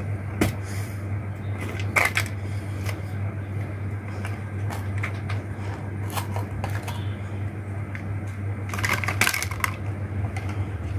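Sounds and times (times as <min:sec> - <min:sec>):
steady low hum: 0:00.0 - 0:10.9
plastic toys clicking and knocking: 0:01.7 - 0:02.4, 0:08.7 - 0:10.6.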